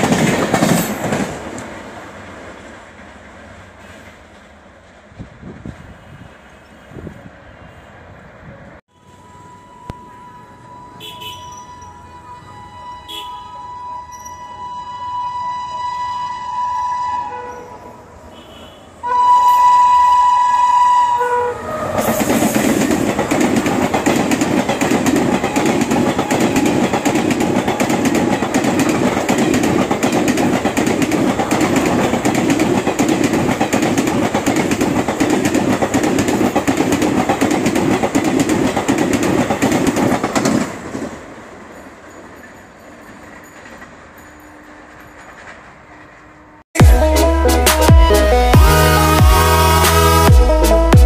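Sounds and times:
train wheels clickety-clack: 0.0 - 6.1, 21.9 - 46.3
train horn blasts: 8.9 - 22.3.

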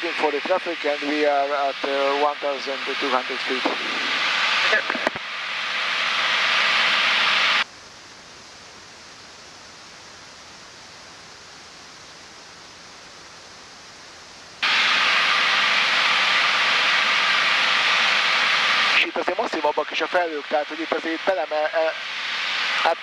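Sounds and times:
light aircraft cabin noise: 0.0 - 5.2.

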